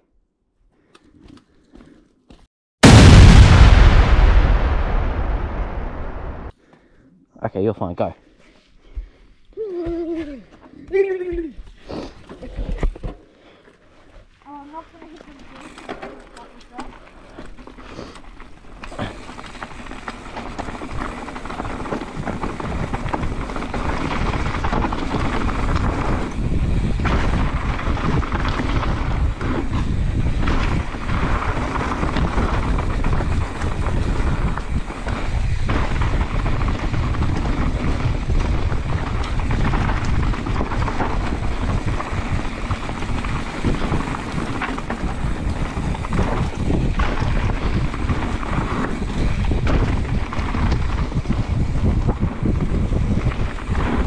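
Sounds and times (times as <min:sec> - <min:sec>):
tyres rumbling on dirt: 0:15.6 - 0:54.0
bike knocking over bumps: 0:18.9 - 0:54.0
wind buffeting microphone: 0:20.8 - 0:54.0.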